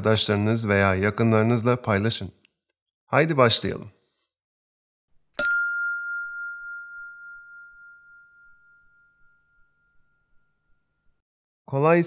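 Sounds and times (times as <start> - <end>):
bell ding: 5.4 - 11.0.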